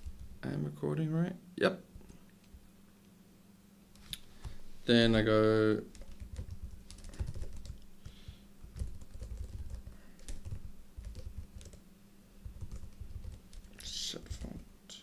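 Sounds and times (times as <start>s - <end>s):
laptop keyboard typing: 0.0s - 0.4s, 5.7s - 11.8s, 12.4s - 14.6s.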